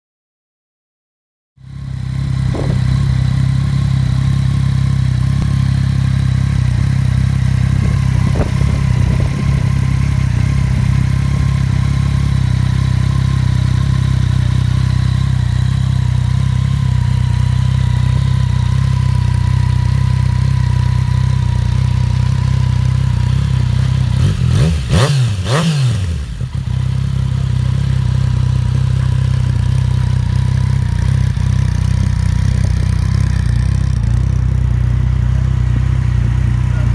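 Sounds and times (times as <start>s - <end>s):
motorcycle engine idling: 1.6s - 36.9s
motorcycle throttle blip: 2.4s - 3.4s, 7.2s - 10.8s, 28.7s - 34.4s.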